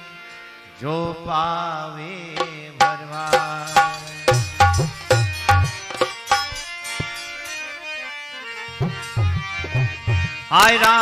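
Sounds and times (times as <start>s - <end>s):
harmonium held notes: 0.0s - 11.0s
dholak drum rhythm: 2.3s - 7.6s, 8.6s - 11.0s.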